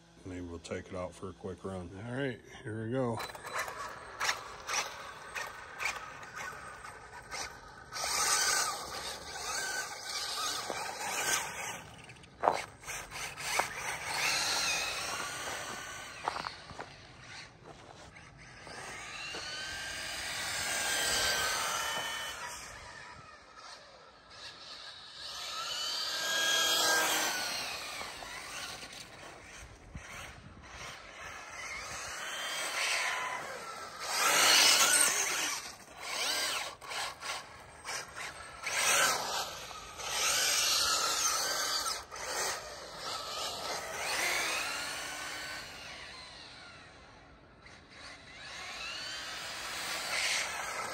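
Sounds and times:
rc car motor whine passing: 0:00.0 - 0:50.9.

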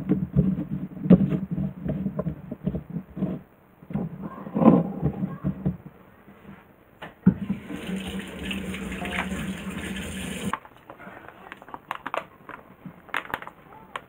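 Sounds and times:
tap water running into sink: 0:07.3 - 0:10.5.

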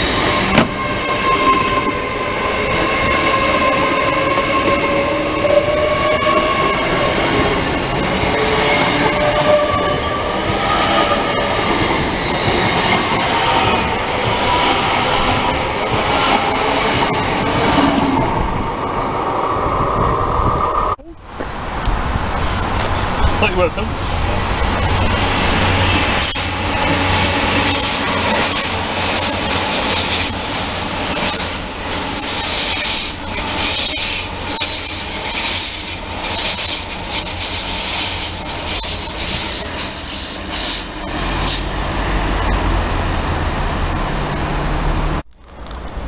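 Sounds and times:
train wheels squealing: 0:00.0 - 0:07.1, 0:08.5 - 0:14.9, 0:22.0 - 0:22.6, 0:26.1 - 0:26.6, 0:27.6 - 0:41.7
wheels clattering over rail joints: 0:21.4 - 0:42.9.

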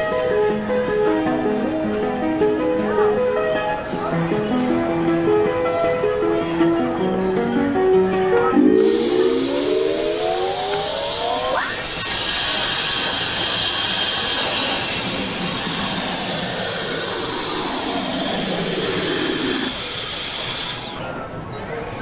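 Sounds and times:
suction blower whirring and whining: 0:08.5 - 0:21.0.

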